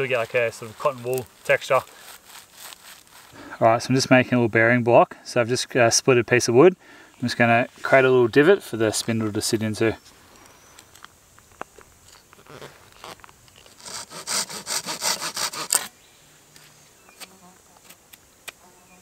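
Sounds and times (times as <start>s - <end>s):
knife scraping wood: 12.1s - 15.9s.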